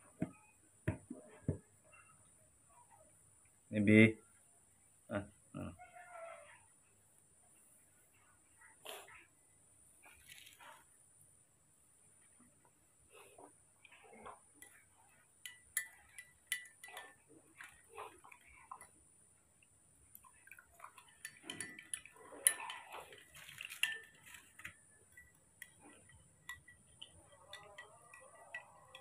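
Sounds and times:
teaspoon clinking against glass cup: 14.6 - 18.9, 20.4 - 29.0.

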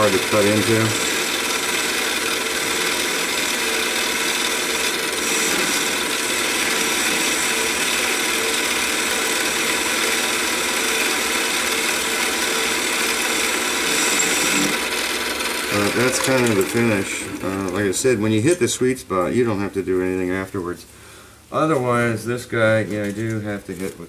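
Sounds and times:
cutting tool on steel: 0.0 - 17.6
lathe motor and gear hum: 0.0 - 18.0.

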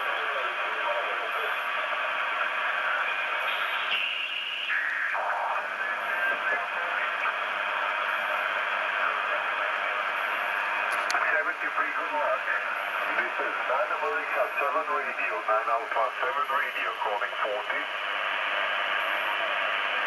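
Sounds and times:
shortwave radio static: 0.0 - 20.0.

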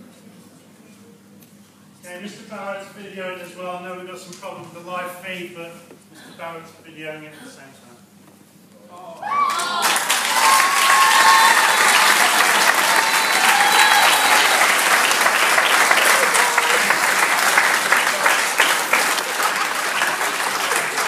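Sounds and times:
people cheering: 9.0 - 21.0
audience applauding: 9.3 - 21.0.

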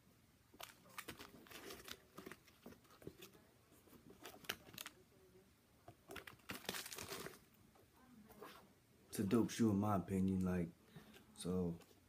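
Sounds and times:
plastic wrap crinkling: 0.6 - 3.4, 6.1 - 7.5.

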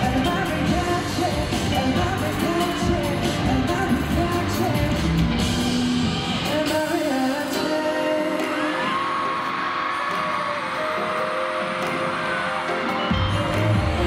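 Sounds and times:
male vocal group singing: 0.0 - 5.3, 6.4 - 9.5, 13.0 - 14.0
pop song over sound system: 0.0 - 14.0.

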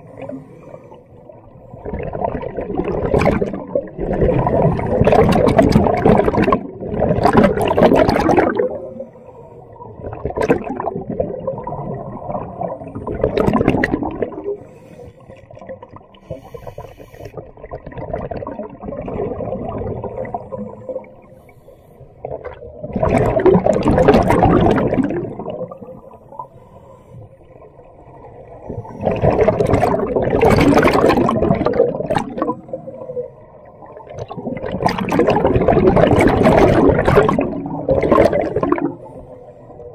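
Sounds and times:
scuba regulator breathing: 0.0 - 1.8, 8.8 - 9.9, 14.4 - 17.5, 20.2 - 22.4, 25.9 - 27.8, 38.9 - 39.9
exhaled air bubbles rushing: 1.4 - 21.4, 22.2 - 26.6, 27.4 - 39.9.

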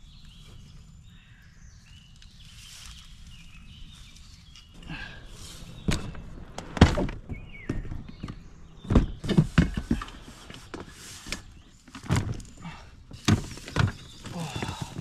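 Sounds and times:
boxes thudding on boat: 5.8 - 15.0.

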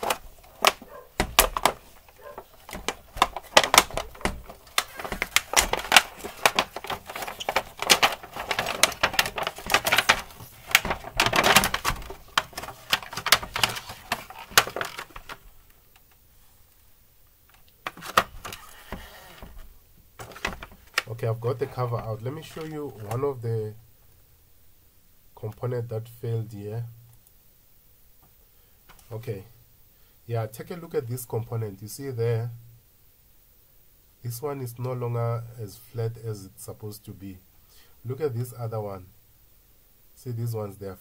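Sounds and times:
plastic sheet clicking and crackling: 0.0 - 16.2, 17.5 - 23.2.

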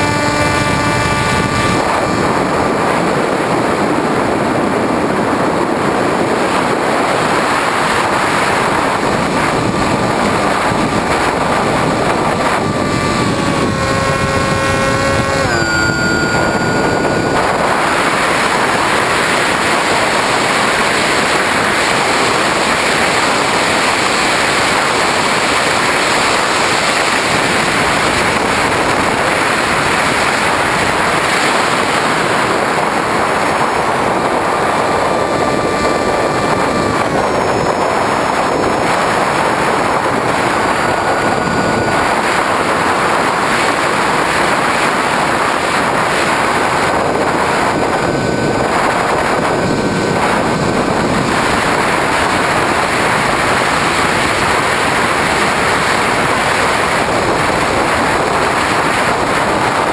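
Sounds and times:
electric motor whine: 0.0 - 5.5, 6.4 - 59.0
wind rush: 0.0 - 59.9.

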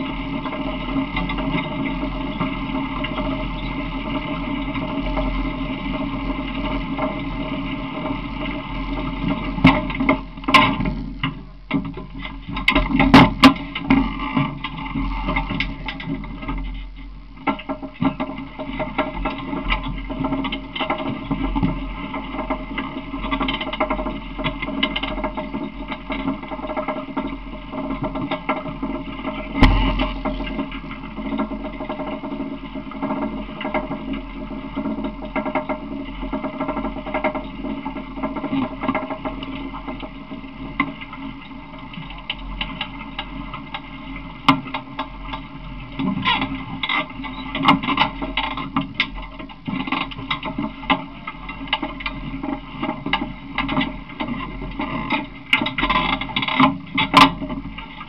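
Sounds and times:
loud thump: 29.6 - 30.4.

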